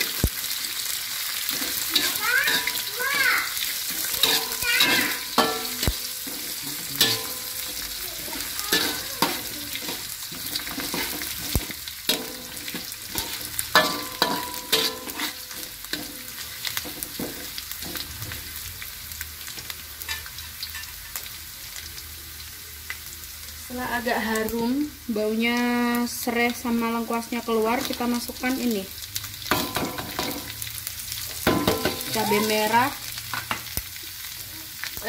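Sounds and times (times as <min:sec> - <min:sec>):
herbs sizzling in hot oil: 0:00.0 - 0:35.0
metal spatula scraping pan: 0:01.5 - 0:02.9, 0:03.8 - 0:18.5.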